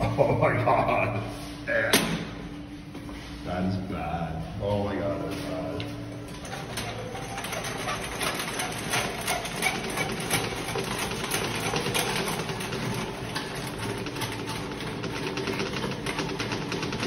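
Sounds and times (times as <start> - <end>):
toilet auger cable rattling: 6.2 - 17.0.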